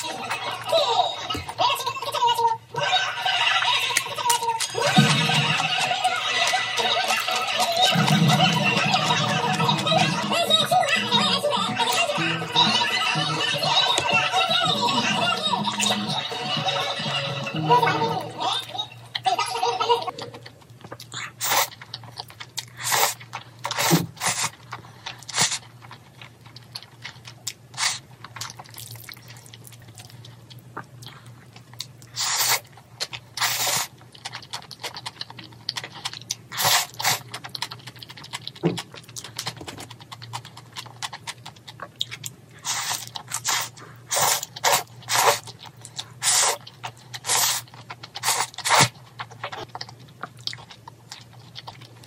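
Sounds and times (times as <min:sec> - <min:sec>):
chewing: 0:20.1 - 0:52.0
noodles slurped: 0:20.3 - 0:25.6, 0:32.1 - 0:32.7, 0:33.4 - 0:38.3, 0:42.6 - 0:49.7.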